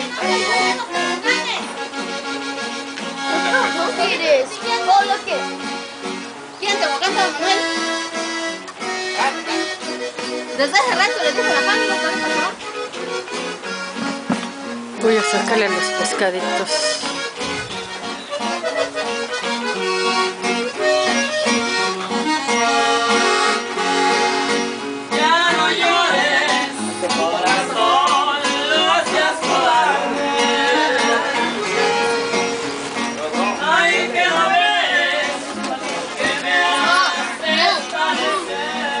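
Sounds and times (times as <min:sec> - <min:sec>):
accordion chords: 0:00.0 - 0:39.0
guitar: 0:00.0 - 0:39.0
person singing: 0:22.5 - 0:24.5, 0:25.1 - 0:32.5, 0:33.5 - 0:39.0.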